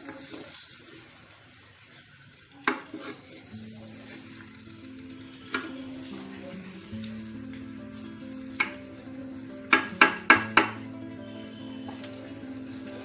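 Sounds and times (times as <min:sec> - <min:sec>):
prawns sizzling in sauce: 0:00.0 - 0:13.0
spatula knocking pan: 0:08.5 - 0:08.9, 0:09.6 - 0:11.0.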